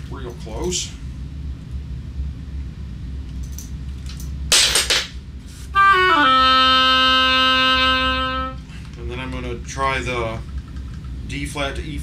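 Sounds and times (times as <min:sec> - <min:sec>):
oboe playing: 0:05.7 - 0:08.7.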